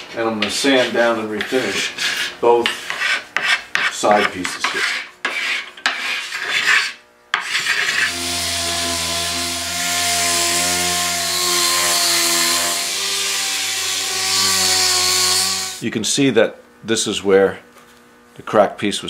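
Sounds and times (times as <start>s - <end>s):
hand sanding on hardwood: 0.3s - 8.3s
orbital sander running: 7.6s - 15.8s.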